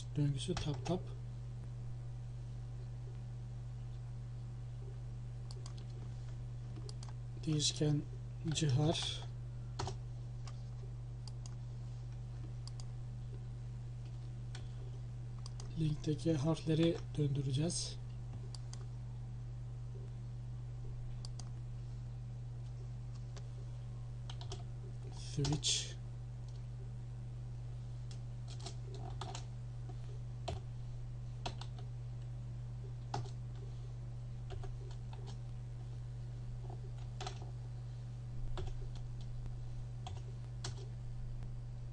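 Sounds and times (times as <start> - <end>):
low electrical hum: 0.0 - 41.9
keyboard and mouse clicks: 5.5 - 6.0, 6.7 - 7.2, 15.4 - 15.7, 21.2 - 21.6.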